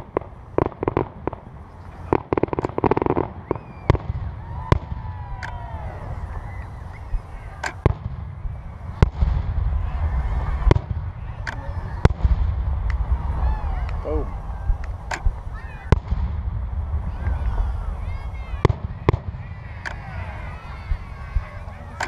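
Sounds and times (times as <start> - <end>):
fireworks bangs: 0.0 - 22.0
fireworks crackling pops: 0.0 - 22.0.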